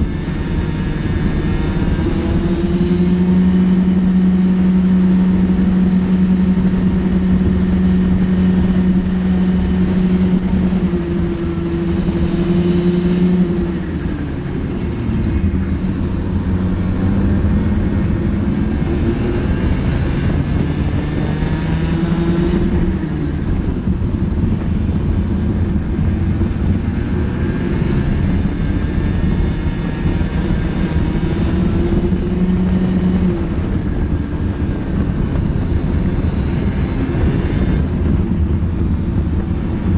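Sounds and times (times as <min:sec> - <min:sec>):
kart engine revving: 0:00.0 - 0:39.9.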